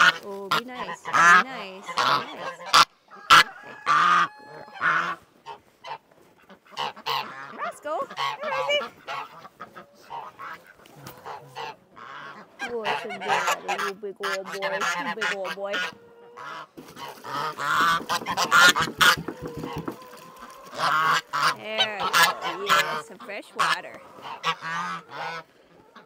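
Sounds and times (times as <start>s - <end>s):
geese honking: 0.0s - 26.0s
sharp knocks: 17.7s - 20.2s.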